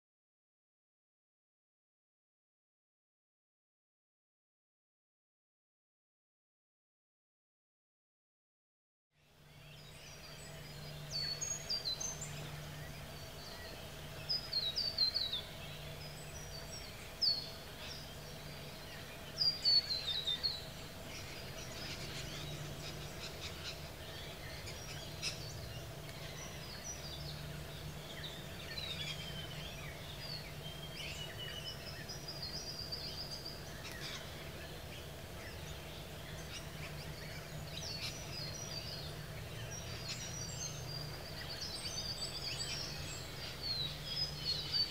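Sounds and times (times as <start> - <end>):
birds chirping: 9.2 - 44.9
steady low hum: 9.2 - 44.9.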